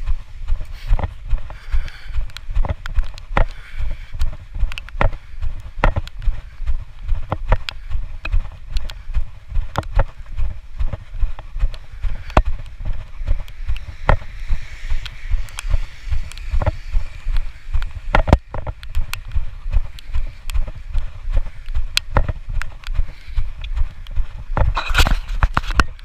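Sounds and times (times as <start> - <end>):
footsteps on wet stone: 0.0 - 26.0.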